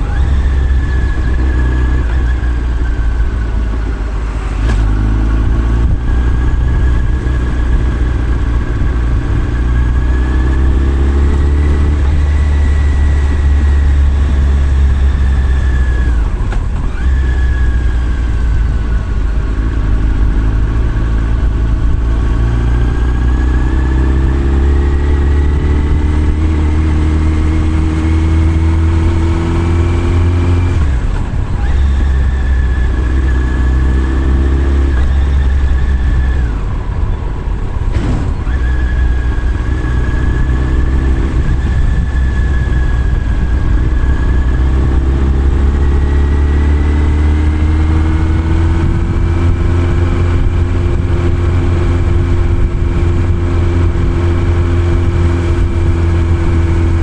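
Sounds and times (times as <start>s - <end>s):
motorcycle engine running: 0.0s - 57.0s
steady low rumble: 17.7s - 45.8s, 48.5s - 57.0s.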